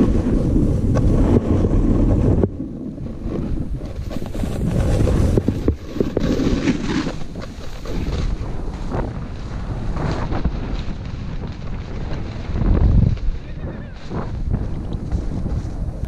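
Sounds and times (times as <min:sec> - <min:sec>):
wind rumbling on microphone: 0:00.0 - 0:16.0
snowboard swishing through snow: 0:03.2 - 0:16.0.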